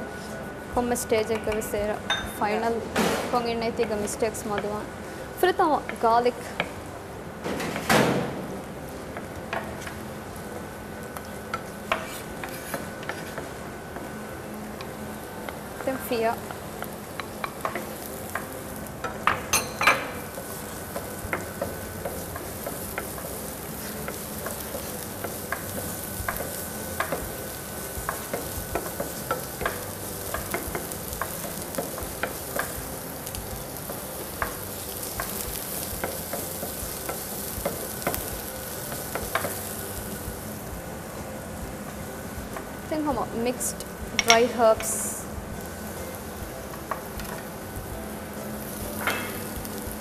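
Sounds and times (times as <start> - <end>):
food sizzling in a frying pan: 0.0 - 50.0
wooden spoon scraping a pan: 11.8 - 13.6.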